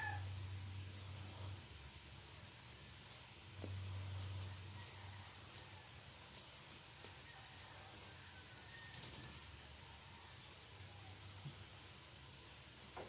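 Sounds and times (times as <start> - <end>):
cat scratching collar: 3.6 - 9.5.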